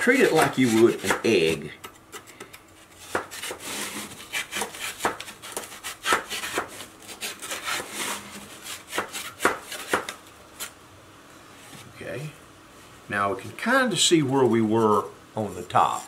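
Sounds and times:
knife scraping soft material: 0.0 - 1.5, 2.8 - 9.9.

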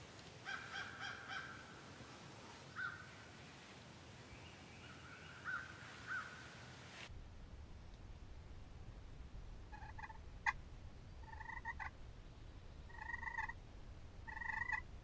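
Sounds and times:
crow cawing: 0.4 - 1.8, 2.8 - 3.0, 5.4 - 6.4.

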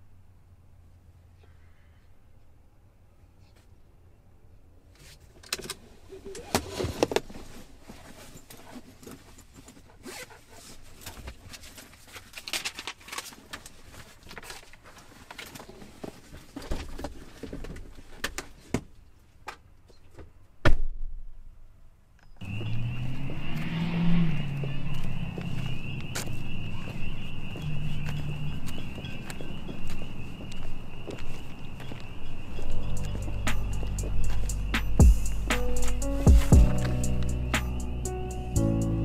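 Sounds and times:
paper rustling: 10.7 - 18.5.

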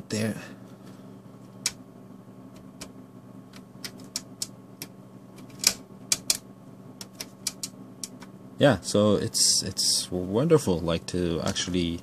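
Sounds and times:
rotary switch clicking: 2.5 - 8.3.

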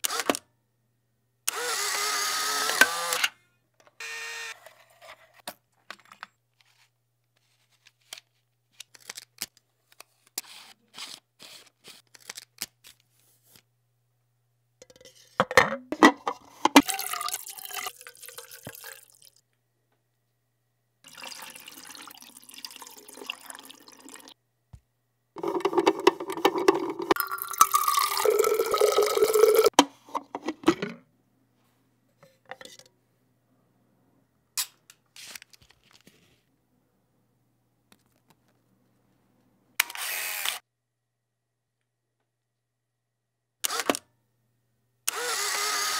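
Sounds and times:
film canister clicks and rattles: 25.4 - 27.2.

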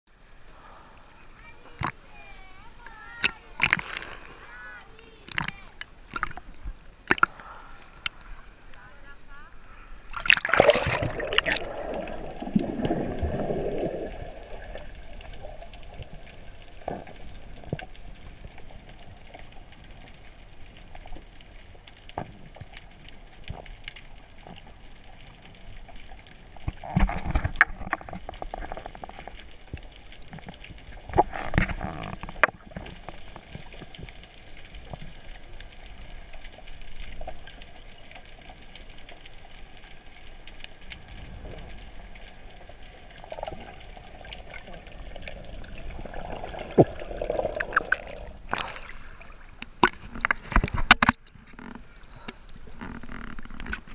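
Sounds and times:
muffled underwater hiss: 0.2 - 51.0
rushes of water: 0.3 - 53.9
underwater clicks: 1.8 - 2.0, 2.8 - 4.4, 5.2 - 8.8, 10.1 - 53.9
splash into water: 10.1 - 14.9.

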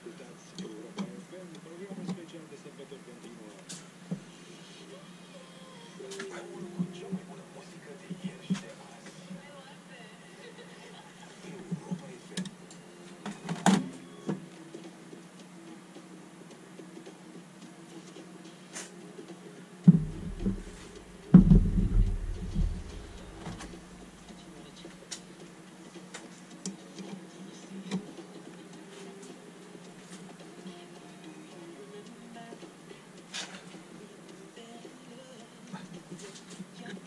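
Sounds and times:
heavy thumps on bench: 19.9 - 23.9.

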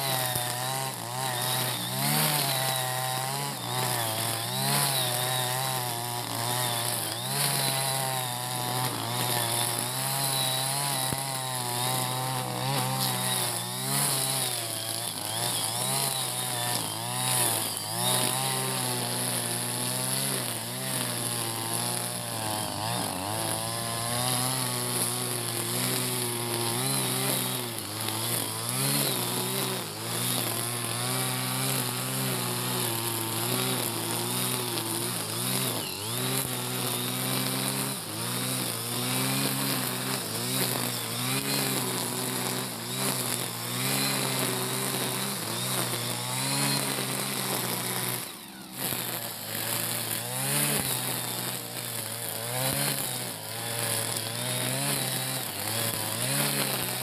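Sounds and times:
brush cutter engine running: 0.0 - 57.0.

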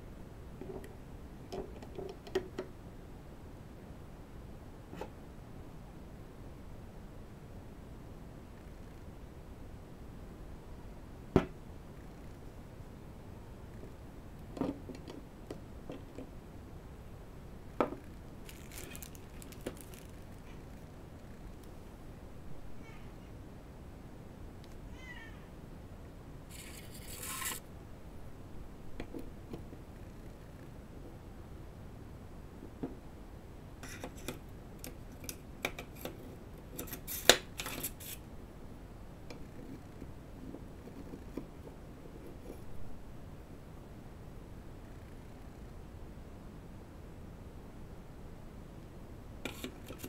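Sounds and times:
plastic bag crinkling: 18.4 - 20.8.

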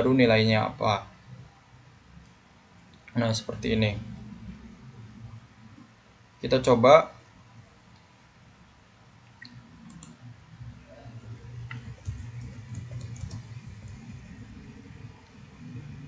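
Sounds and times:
faint low hum: 0.0 - 16.0
keyboard keys clicking: 11.6 - 14.3.

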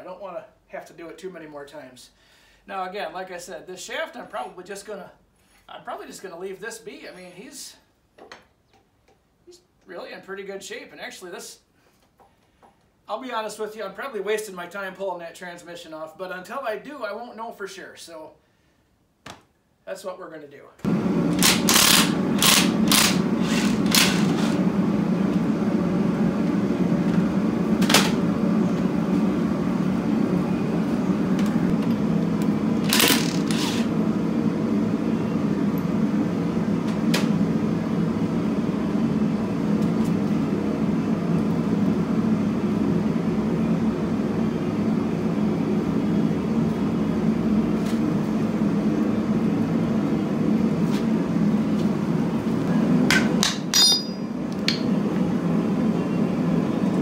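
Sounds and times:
mechanical hum: 20.8 - 57.0
tools knocking on metal: 53.1 - 54.9.

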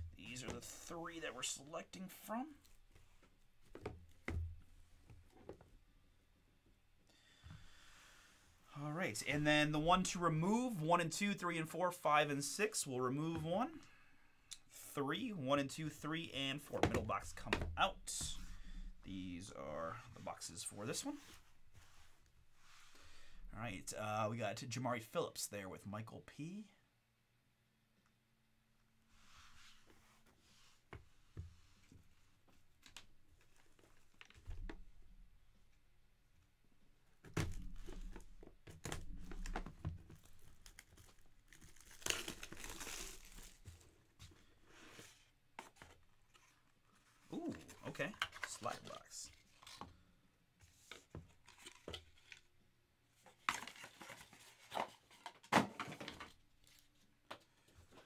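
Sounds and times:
plastic wrap rustling: 39.0 - 44.0.

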